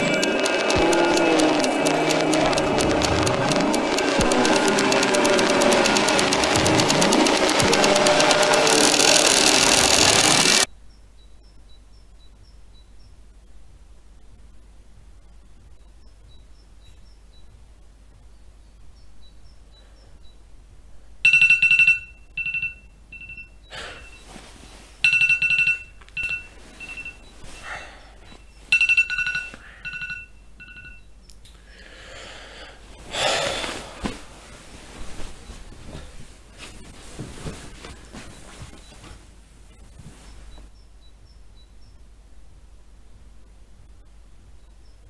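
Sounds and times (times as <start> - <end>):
telephone ringing: 0.0 - 10.7, 21.2 - 24.4, 25.0 - 31.1.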